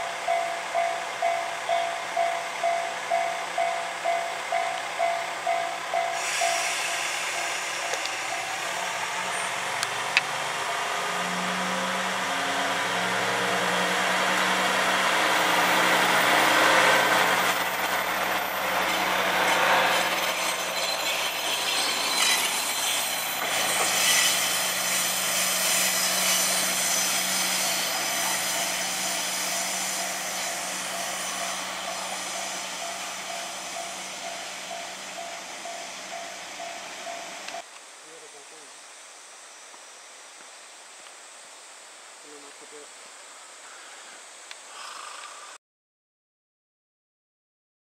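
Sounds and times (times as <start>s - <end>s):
diesel railcar engine accelerating: 0.0s - 37.7s
train wheels on rails: 0.0s - 37.7s.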